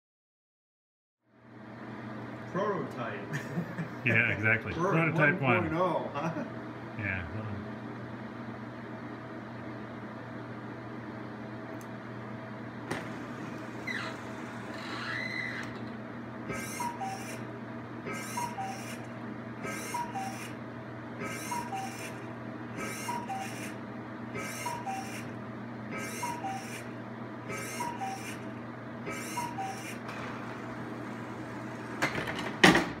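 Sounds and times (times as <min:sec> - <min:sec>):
steady low hum: 0:01.3 - 0:32.8.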